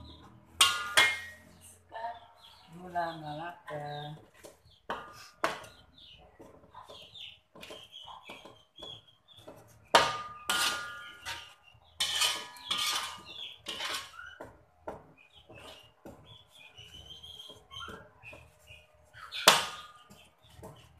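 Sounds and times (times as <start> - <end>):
wok ringing: 0.6 - 1.6, 10.0 - 14.2
metal spatula scraping a wok: 9.9 - 14.4.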